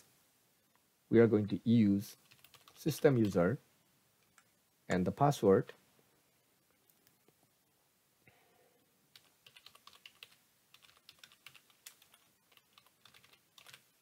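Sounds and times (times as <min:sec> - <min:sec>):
typing on a keyboard: 0:02.2 - 0:03.4, 0:09.2 - 0:14.0.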